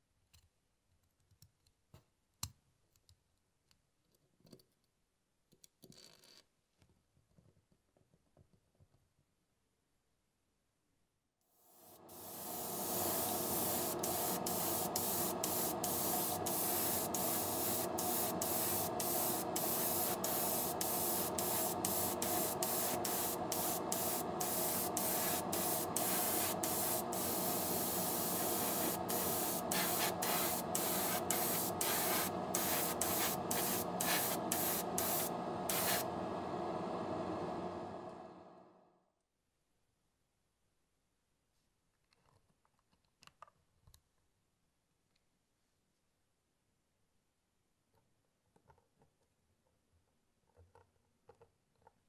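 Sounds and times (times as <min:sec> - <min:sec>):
faint steady hum: 0:11.6 - 0:38.8
airbrush hissing: 0:11.7 - 0:36.1.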